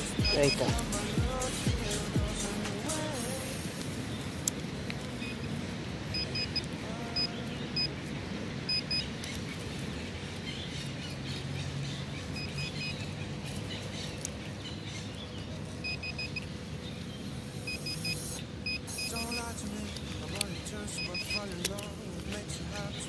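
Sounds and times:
metal detector high beeps: 0.0 - 0.9, 6.1 - 8.1, 8.7 - 9.1, 12.3 - 13.1, 15.8 - 16.5, 17.6 - 19.6, 20.9 - 21.5.

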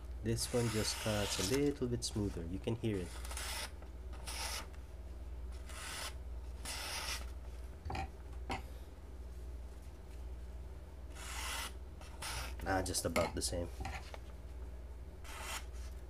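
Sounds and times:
knife slicing paper: 0.4 - 1.7.

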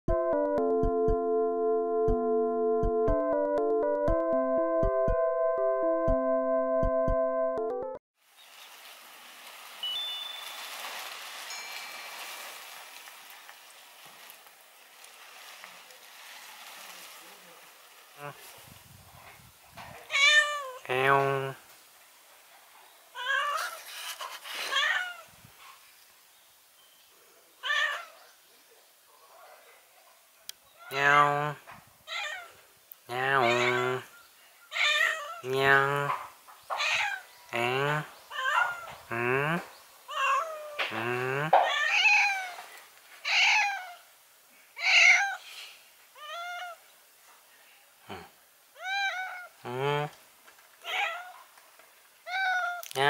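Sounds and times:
cat meowing: 20.1 - 20.8, 23.2 - 23.8, 24.7 - 25.3, 27.6 - 28.2, 32.1 - 32.6, 33.4 - 34.0, 34.7 - 35.5, 36.8 - 37.3, 38.3 - 38.9, 40.1 - 40.9, 41.6 - 44.0, 44.8 - 45.4, 46.2 - 46.8, 48.8 - 49.6, 50.8 - 51.4, 52.3 - 52.9.

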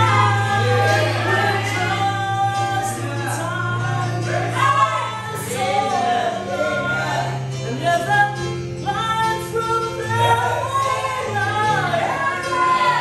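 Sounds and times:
men's vocal group singing: 0.0 - 8.0.

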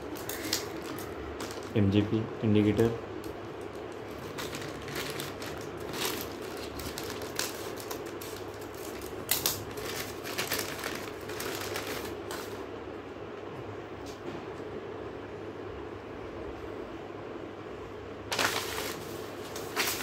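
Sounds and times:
plastic bag crinkling: 0.0 - 2.0, 3.6 - 12.7, 18.3 - 20.0.

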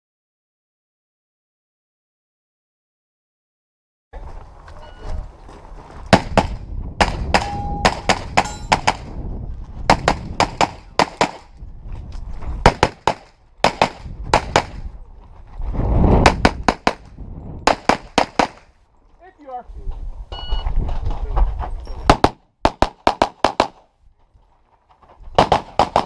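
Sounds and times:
pistol shots: 22.1 - 23.8, 25.4 - 26.0.

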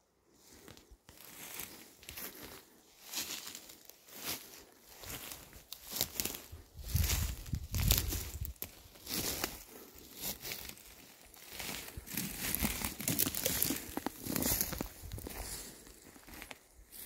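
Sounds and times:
crinkling and rustling: 4.2 - 16.7.

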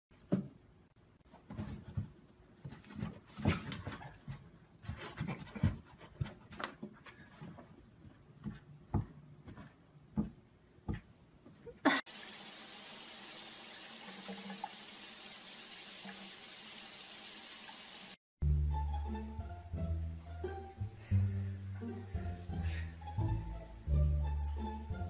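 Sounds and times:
tap water running: 12.1 - 18.2.

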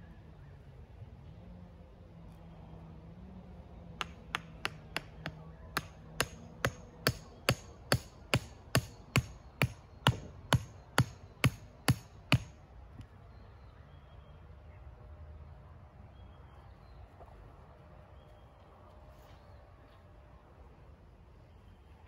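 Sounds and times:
hammer driving wooden stake: 4.0 - 12.5.

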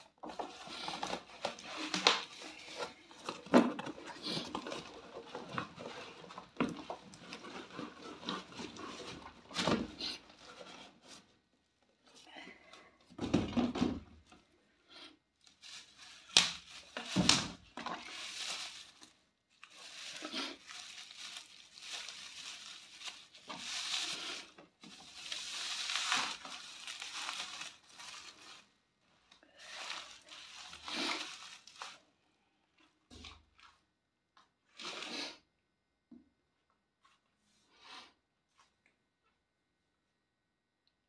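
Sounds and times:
bubble wrap crinkling and tearing: 0.2 - 11.2, 15.4 - 28.8, 29.5 - 32.0
bubble wrap snaps: 16.2 - 17.5.

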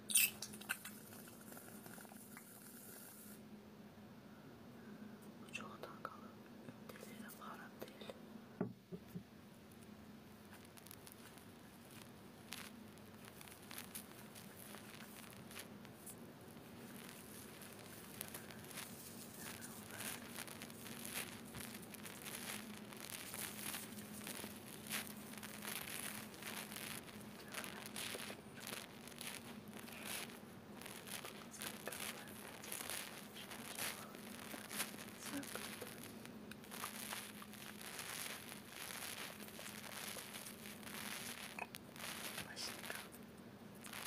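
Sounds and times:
shaving foam crackling and squishing: 10.6 - 43.2.

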